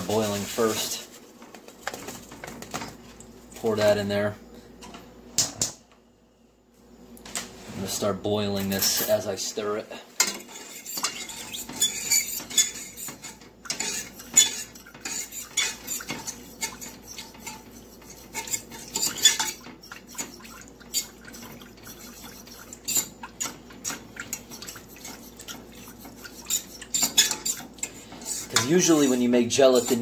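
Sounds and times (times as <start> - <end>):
fork clinking and scraping in saucepan: 10.2 - 30.0.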